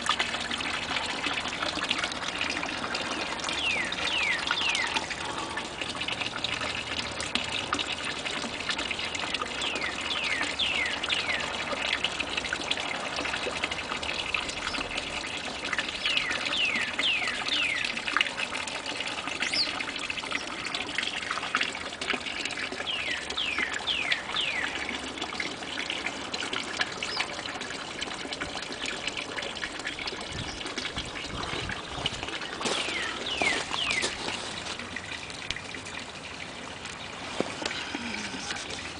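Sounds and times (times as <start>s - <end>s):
waterfall splashing over rocks: 31.9s - 35.6s
bird chirping: 32.4s - 34.4s.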